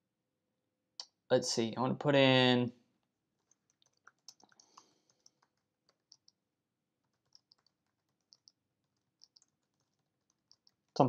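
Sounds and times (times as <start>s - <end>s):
computer keyboard typing: 3.4s - 6.4s, 7.0s - 11.0s.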